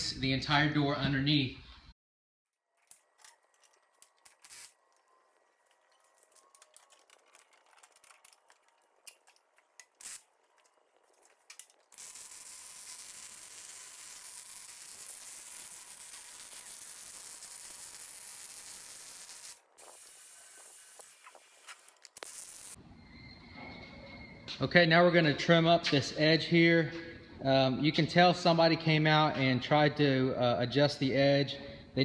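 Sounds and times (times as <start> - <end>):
welding arc sizzling hiss: 11.9 - 22.8.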